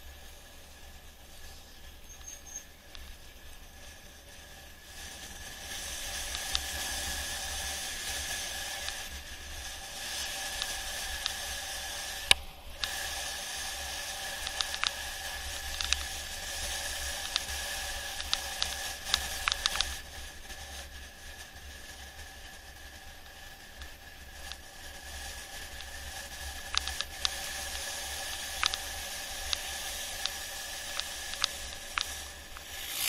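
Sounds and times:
faint steady whine: 0.0s - 33.0s
rushing air and rolling noise: 0.0s - 33.0s
sharp clicks and rattles: 14.4s - 16.2s, 17.0s - 20.0s, 26.6s - 33.0s.

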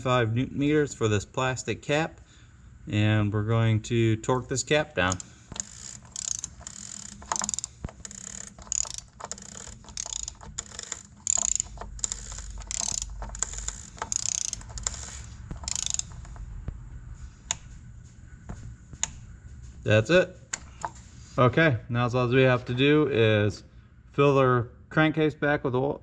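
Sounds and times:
torque wrench ratcheting: 5.0s - 16.4s.

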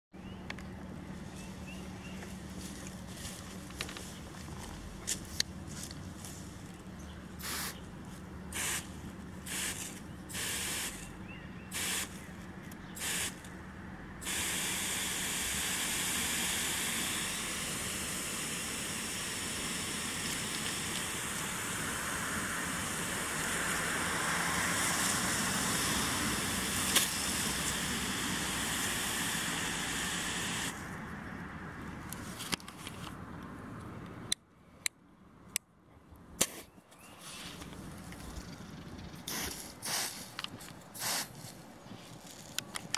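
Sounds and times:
hose nozzle spraying water: 7.4s - 7.8s, 8.6s - 11.1s, 11.7s - 12.1s, 13.0s - 13.4s, 14.2s - 30.8s, 39.3s - 41.4s.

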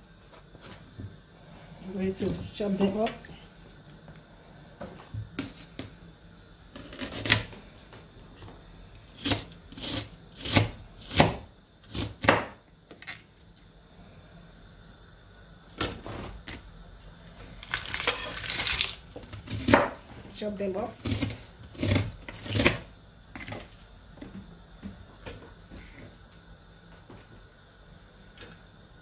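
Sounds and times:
knife chopping on plastic board: 9.2s - 12.6s.

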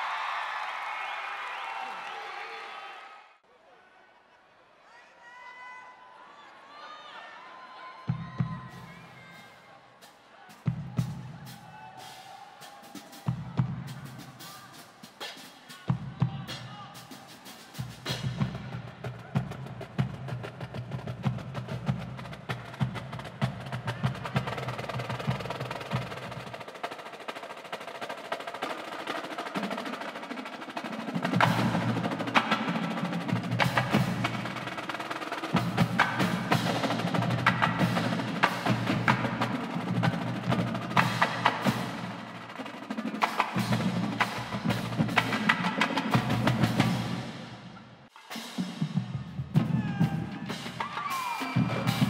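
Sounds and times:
snare drums: 8.1s - 52.0s
tenor drums: 8.1s - 52.0s.

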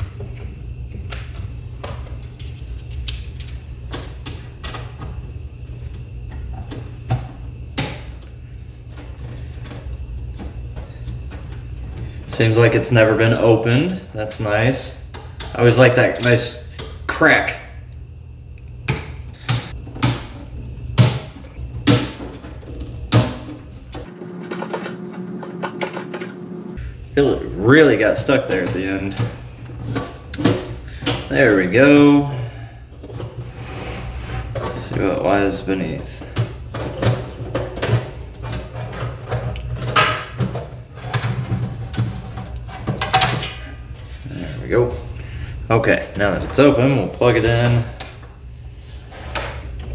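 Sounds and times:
faint steady hum: 0.0s - 49.9s.

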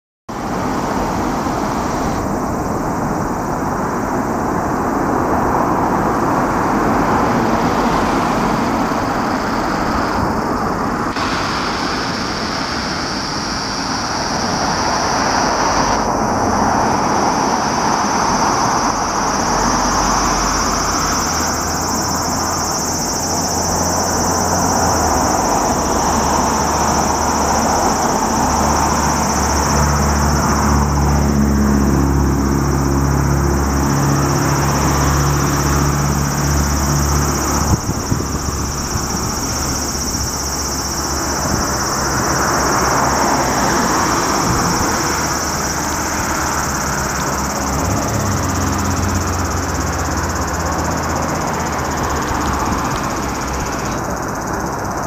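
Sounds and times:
constant high whine: 0.3s - 55.0s
heavy vehicle engine humming: 0.3s - 55.0s
road traffic passing: 0.3s - 55.0s.

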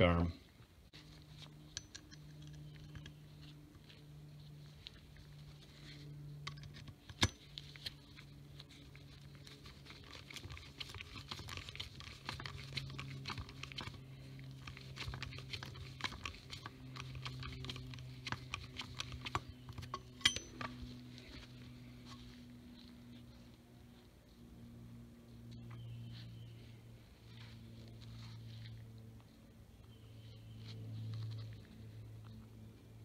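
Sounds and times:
steady low hum: 0.0s - 33.0s
small metal clicks and scrapes: 1.0s - 21.4s.

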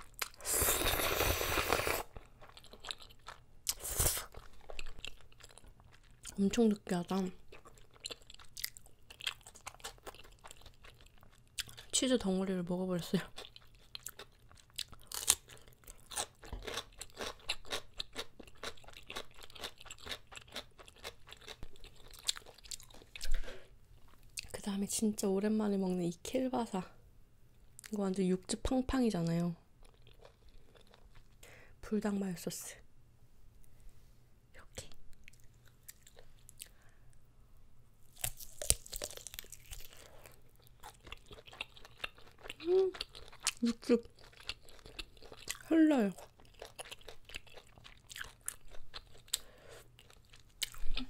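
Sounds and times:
wet chewing of noodles: 0.0s - 6.4s, 7.2s - 12.0s, 13.4s - 23.4s, 29.8s - 31.4s, 38.1s - 51.0s
biting through sausage casing: 38.0s - 43.6s.

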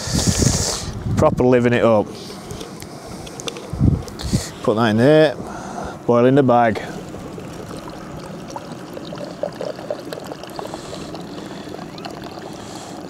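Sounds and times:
water pouring into a cup: 6.8s - 13.0s.

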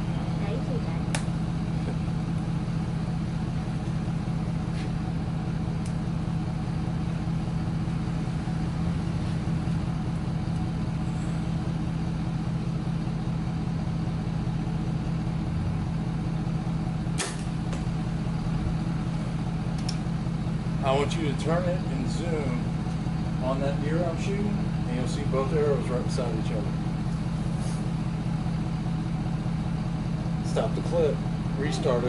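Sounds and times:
truck engine rumbling: 0.0s - 32.0s
bow shot crack: 17.1s - 17.9s.

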